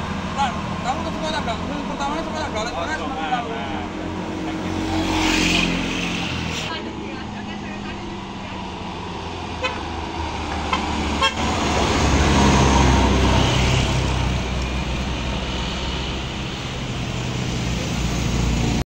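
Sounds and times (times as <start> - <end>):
diesel truck engine climbing: 0.0 - 18.8
truck horn toots: 9.5 - 10.0, 10.6 - 12.7.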